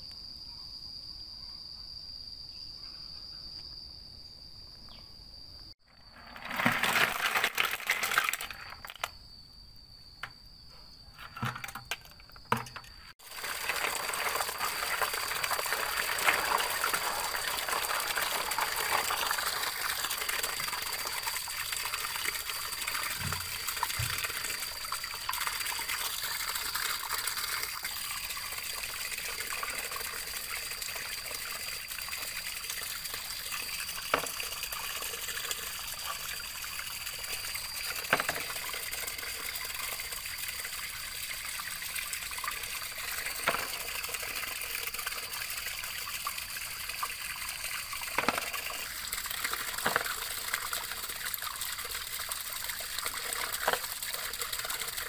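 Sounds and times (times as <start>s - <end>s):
water running and trickling: 12.6s - 55.0s.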